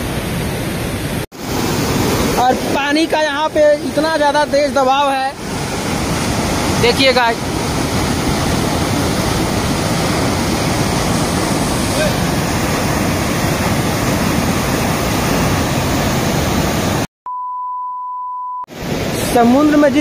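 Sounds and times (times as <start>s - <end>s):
river rushing over rocks: 0.0s - 17.1s
test-pattern beep tone: 17.3s - 18.7s.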